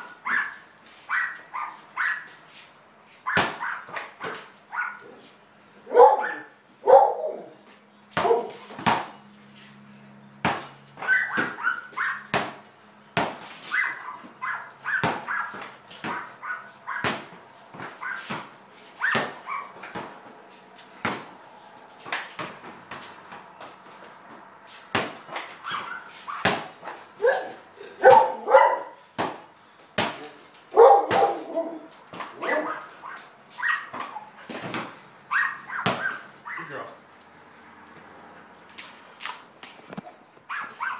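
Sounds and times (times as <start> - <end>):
dog barking and yipping: 0.0 - 2.4, 3.2 - 7.6, 8.2 - 8.7, 11.0 - 12.3, 13.6 - 17.2, 18.0 - 18.3, 19.0 - 19.9, 25.6 - 29.0, 30.7 - 34.5, 35.2 - 36.8, 40.0 - 40.9
basketball bouncing on concrete: 3.3 - 4.6, 8.1 - 9.3, 10.3 - 27.2, 28.1 - 33.0, 33.7 - 36.5.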